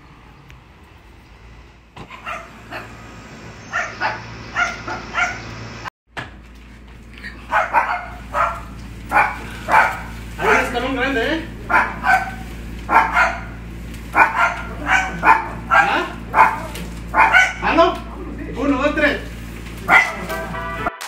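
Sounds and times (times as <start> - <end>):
dog barking: 2.1 - 3.0, 3.6 - 5.5, 7.5 - 10.8, 11.6 - 17.9, 19.9 - 20.6.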